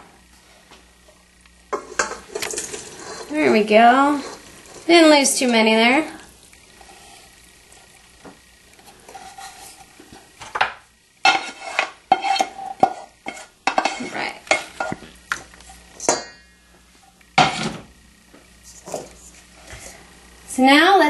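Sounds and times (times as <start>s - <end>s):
utensil clinking and scraping: 1.7s - 4.9s.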